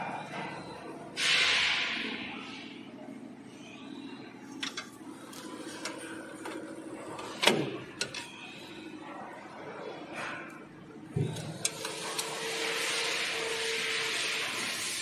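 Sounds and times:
metal clicks and knocks: 4.6s - 5.0s.

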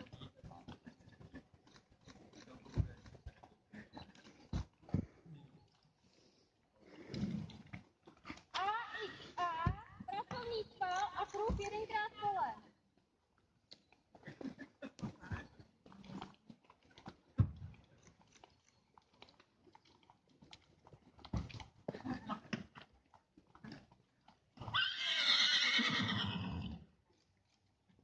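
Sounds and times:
horse whinnying: 24.6s - 26.8s.

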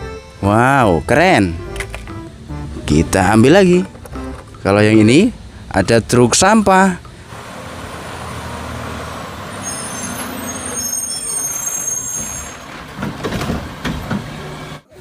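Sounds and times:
truck engine rumble: 0.0s - 15.0s
high squealing tones: 9.5s - 12.8s.

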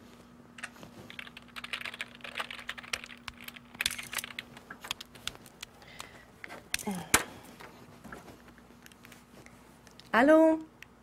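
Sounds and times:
faint steady hum: 0.0s - 11.0s
keyboard typing: 0.6s - 6.1s.

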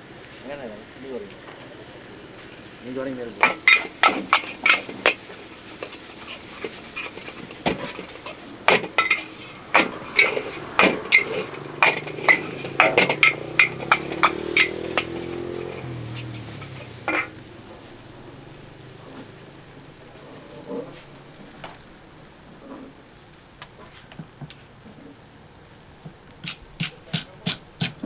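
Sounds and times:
metal spatula clanging against wok: 6.6s - 17.3s
low engine hum: 8.0s - 23.5s.

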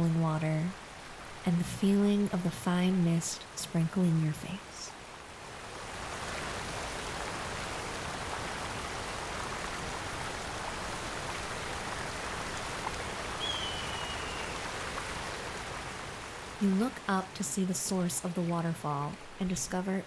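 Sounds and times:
faint high whistle: 13.4s - 14.5s.

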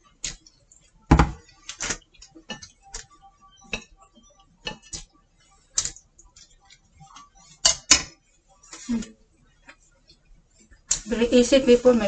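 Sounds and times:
chopsticks tapping plate and pot: 3.7s - 4.0s, 4.6s - 5.1s, 7.6s - 8.2s.

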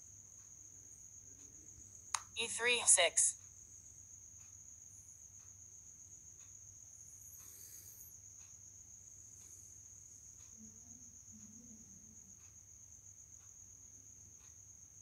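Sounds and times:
faint ticks: 3.4s - 15.0s.

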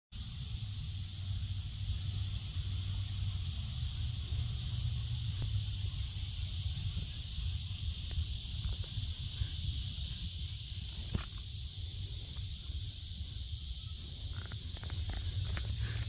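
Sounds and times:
insect chorus hissing: 0.2s - 16.0s
low steady rumble: 0.2s - 16.0s.

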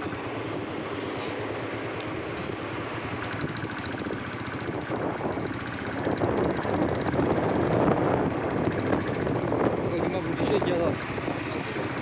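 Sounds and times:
motorcycle engine running: 0.0s - 12.0s
wind buffeting microphone: 3.3s - 12.0s.

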